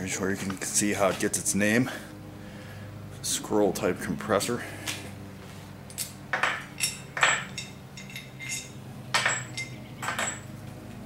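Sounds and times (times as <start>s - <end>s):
metal parts clinking together: 5.9s - 10.6s.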